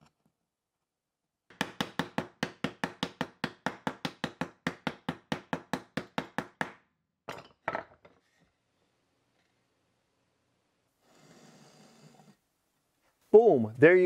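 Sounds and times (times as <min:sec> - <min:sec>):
mallet tapping wood: 0:01.5 - 0:06.8.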